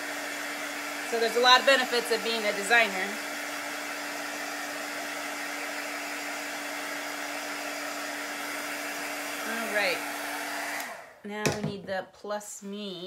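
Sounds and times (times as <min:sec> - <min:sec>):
heat tool blowing air: 0:00.0 - 0:11.2.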